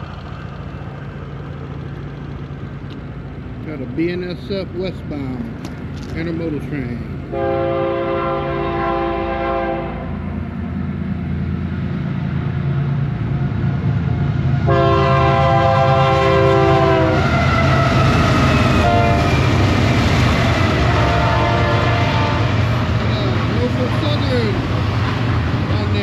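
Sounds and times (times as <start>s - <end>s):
locomotive engines rumbling: 0.0s - 26.0s
locomotive air horn: 7.3s - 10.2s, 14.7s - 17.9s, 18.8s - 19.4s, 20.9s - 22.6s.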